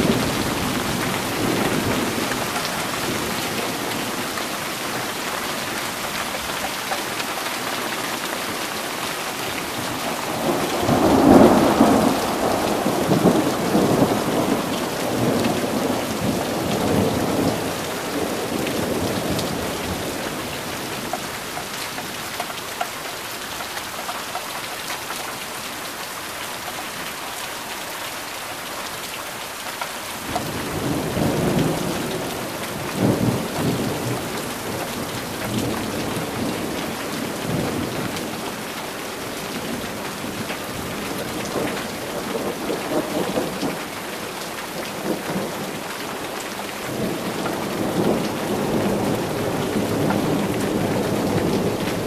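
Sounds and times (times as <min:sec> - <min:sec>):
steady rain: 0:00.0 - 0:52.0
rolling thunder: 0:09.8 - 0:21.1.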